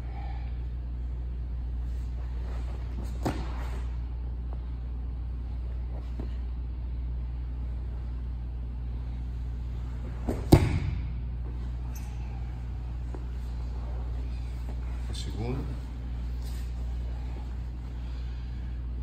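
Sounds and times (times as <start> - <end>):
steady low hum: 0.0 - 19.0
thump on mat: 3.0 - 3.8, 10.2 - 11.1.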